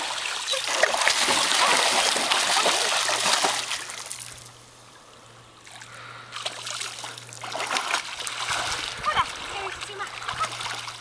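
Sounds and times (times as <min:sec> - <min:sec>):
dog splashing through water: 0:00.5 - 0:03.8, 0:06.4 - 0:11.0.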